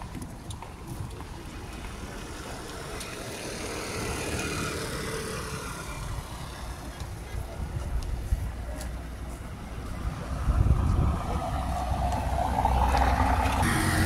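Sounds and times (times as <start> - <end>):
vehicle passing on road: 0.0 - 14.0.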